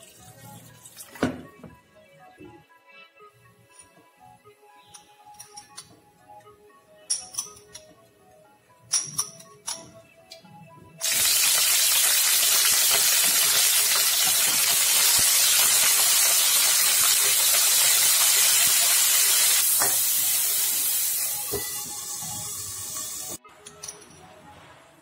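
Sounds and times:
cauliflower sizzling in hot oil: 0:11.0 - 0:23.4.

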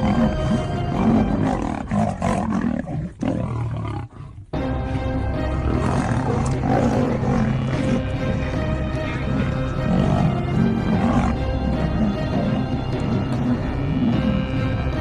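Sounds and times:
big cats roaring: 0:00.0 - 0:04.6, 0:05.5 - 0:15.0
background music: 0:00.0 - 0:15.0.

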